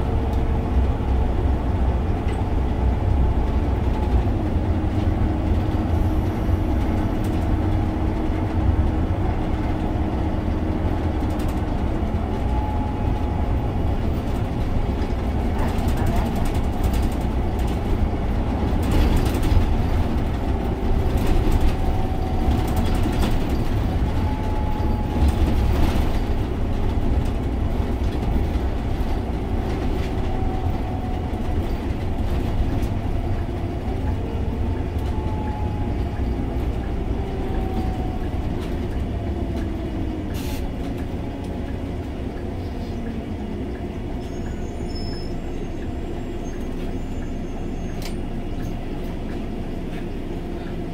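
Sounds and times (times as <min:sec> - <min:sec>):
bus engine and road noise: 0:00.0 - 0:50.9.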